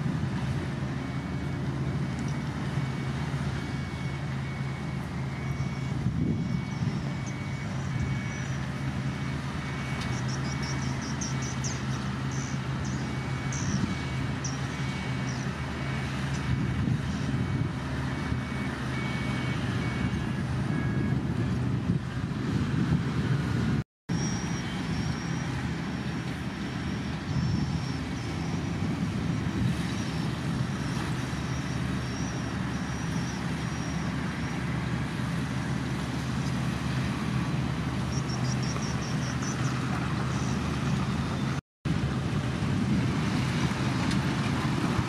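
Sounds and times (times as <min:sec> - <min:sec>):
bulldozer diesel engine: 0:00.0 - 0:45.0
reversing alarm beeping: 0:00.8 - 0:21.6, 0:24.1 - 0:35.2.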